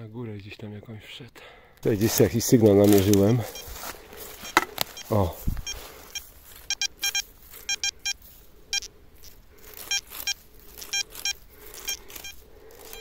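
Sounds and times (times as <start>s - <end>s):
metal detector beeps: 2.8s - 13.0s.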